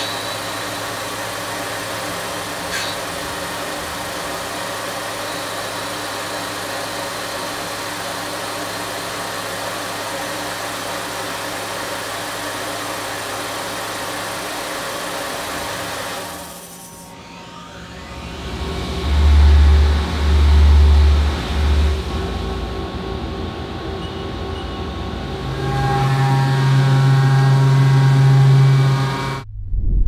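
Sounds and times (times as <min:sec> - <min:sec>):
mill spindle humming: 0:18.0 - 0:29.5.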